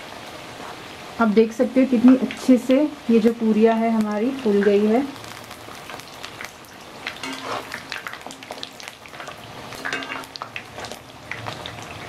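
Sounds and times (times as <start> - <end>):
deep-frying sizzle and crackle: 0.0 - 12.0
metal spoon scraping a pan: 7.1 - 8.7, 9.7 - 10.9.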